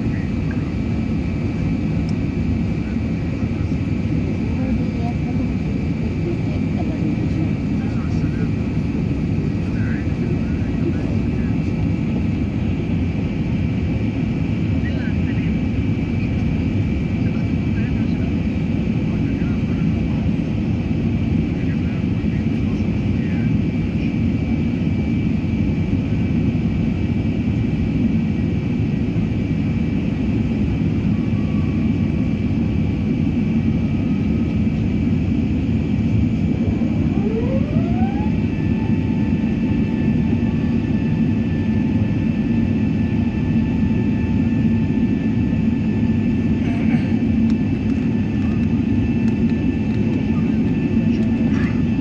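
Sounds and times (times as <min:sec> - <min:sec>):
jet engines roaring in cabin: 0:00.0 - 0:52.0
thin rising whine: 0:36.6 - 0:40.6.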